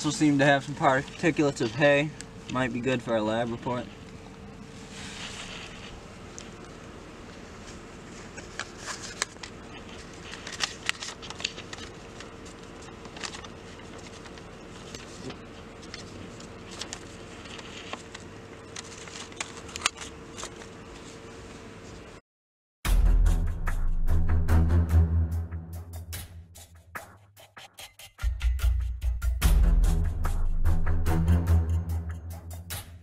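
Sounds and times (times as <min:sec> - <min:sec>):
faint steady hum: 0:00.0 - 0:22.2
paper rustling and crinkling: 0:04.7 - 0:22.1.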